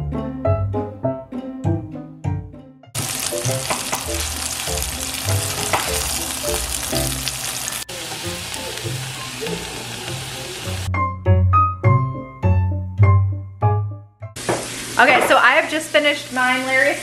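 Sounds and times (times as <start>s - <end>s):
faint piano music: 0.0s - 14.4s
chicken sizzling in oil: 3.0s - 10.9s, 14.4s - 17.0s.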